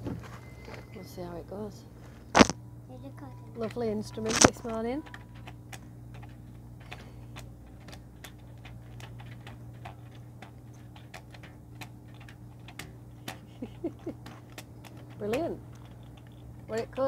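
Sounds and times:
steady low hum: 0.0s - 17.0s
strings plucked and snapped: 2.4s - 2.6s.

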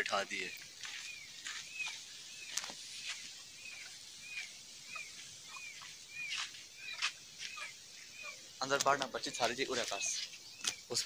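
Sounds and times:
bird chick peeping: 0.3s - 11.0s.

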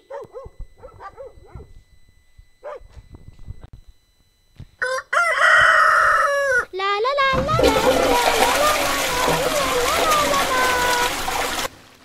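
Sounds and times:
dog yapping: 0.0s - 1.6s, 2.6s - 2.9s
rooster crowing: 4.8s - 6.7s.

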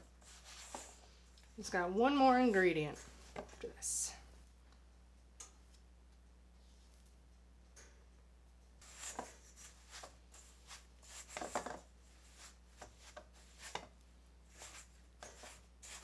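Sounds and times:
spatula scraping dough in metal bowl: 14.5s - 16.0s.

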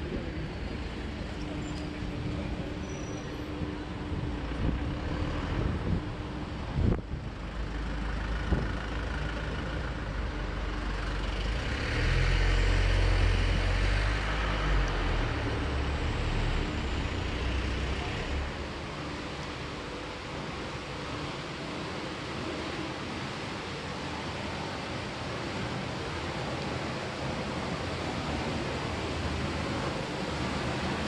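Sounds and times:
heavy vehicle rumbling past: 0.0s - 21.6s
street traffic hiss: 0.0s - 31.0s.

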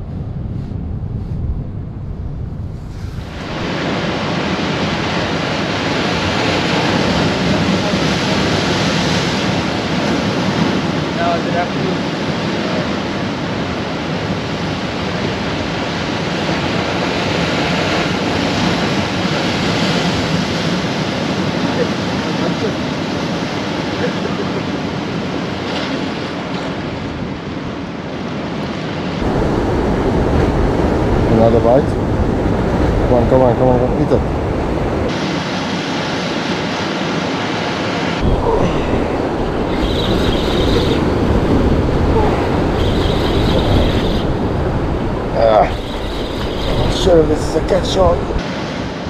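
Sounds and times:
wind buffeting microphone: 0.0s - 28.1s, 29.2s - 37.3s, 38.1s - 49.0s
surf breaking over rocks: 35.1s - 49.0s.

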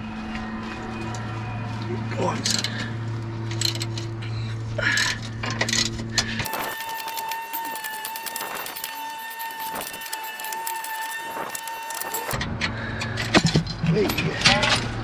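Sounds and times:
high-pitched whine: 0.0s - 12.5s
metal rattling: 4.8s - 12.4s
ratchet clicking: 5.7s - 12.4s.

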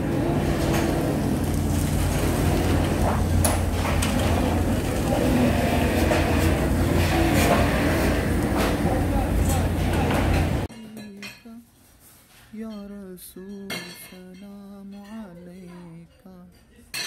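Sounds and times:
low machine hum: 0.0s - 10.7s.

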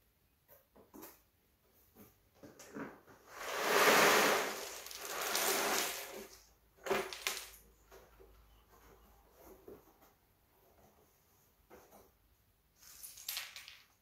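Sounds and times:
pieces clacking on table: 3.6s - 7.7s, 12.8s - 14.0s
puzzle pieces rattling onto table: 4.4s - 6.3s, 7.0s - 7.6s, 12.9s - 14.0s.

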